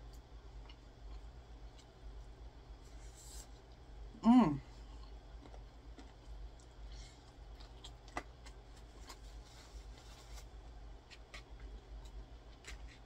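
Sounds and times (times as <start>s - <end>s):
chewing and mouth clicks: 4.9s - 9.2s.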